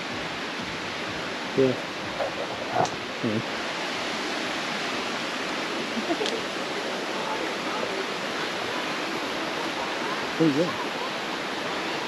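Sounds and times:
water rushing: 0:00.0 - 0:12.0
faint voices: 0:01.6 - 0:03.5, 0:05.8 - 0:12.0.

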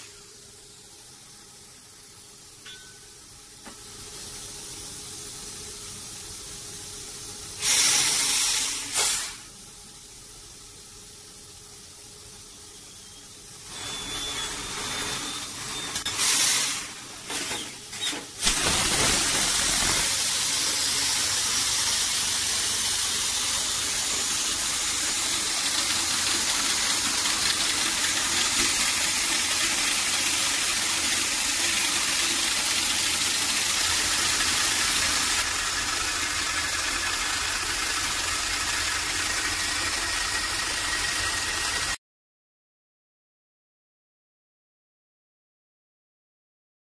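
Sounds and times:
short loud hiss: 0:07.6 - 0:09.5, 0:18.4 - 0:21.4
spurts of hiss: 0:07.6 - 0:09.5, 0:16.1 - 0:17.3, 0:18.4 - 0:41.8
drill rig hissing rush: 0:13.0 - 0:42.0.

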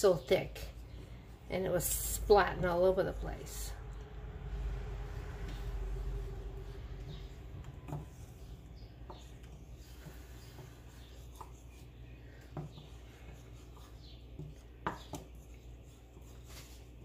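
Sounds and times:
low hum: 0:00.5 - 0:11.0.

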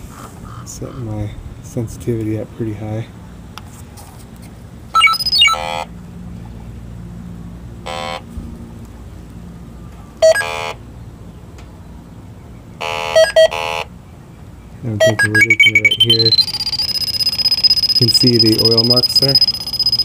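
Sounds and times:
leak detector buzzing alarm: 0:05.0 - 0:05.9, 0:07.9 - 0:08.2, 0:10.2 - 0:10.8, 0:12.8 - 0:13.9, 0:15.0 - 0:20.0.

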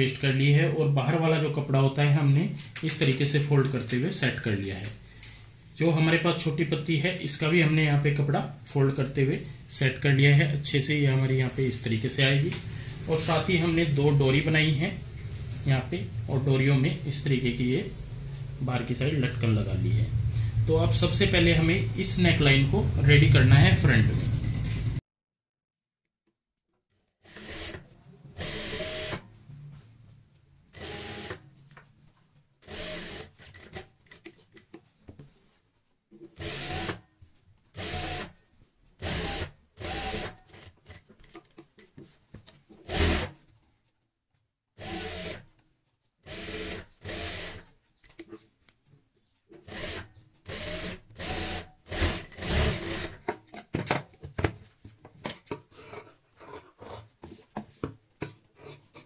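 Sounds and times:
sewing machine stitching: 0:27.2 - 0:29.2, 0:30.7 - 0:31.4, 0:32.6 - 0:34.3, 0:49.6 - 0:53.3.

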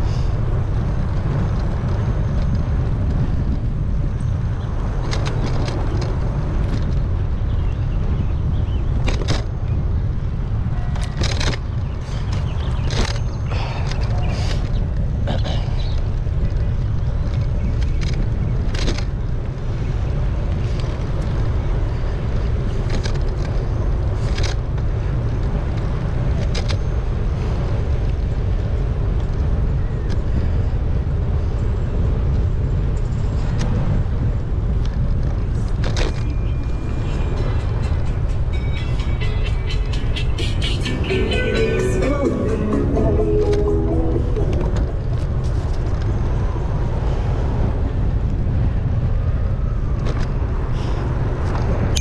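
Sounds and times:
wind buffeting microphone: 0:00.0 - 0:42.3
music: 0:38.5 - 0:45.0.

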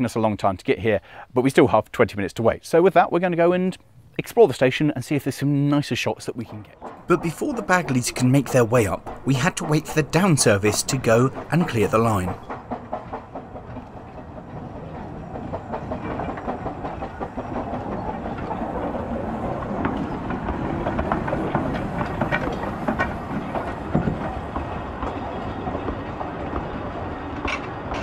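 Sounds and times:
steam locomotive passing: 0:04.5 - 0:28.0
wheels clicking over rail joints: 0:05.3 - 0:28.0
carriages rumbling: 0:06.3 - 0:28.0.

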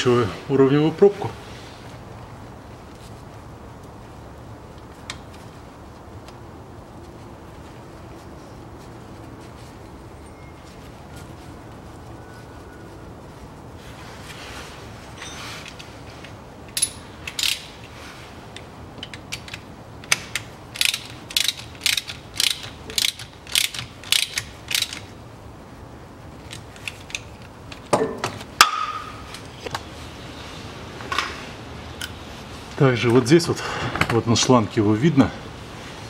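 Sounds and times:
ratchet wrench clicking: 0:16.7 - 0:17.7, 0:19.0 - 0:25.1.

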